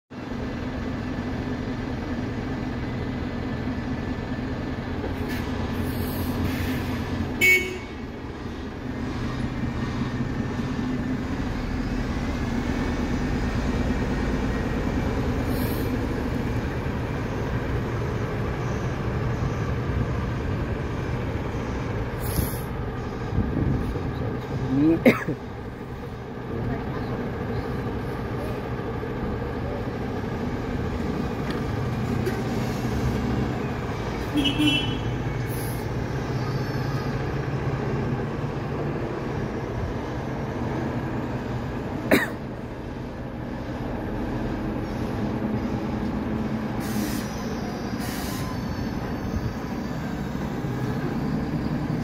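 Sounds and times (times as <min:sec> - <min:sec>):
bus engine droning: 0:00.1 - 0:52.0
air brakes hissing: 0:05.2 - 0:07.2, 0:15.3 - 0:16.4, 0:21.5 - 0:23.6, 0:32.2 - 0:33.4, 0:35.4 - 0:37.4, 0:44.6 - 0:50.6.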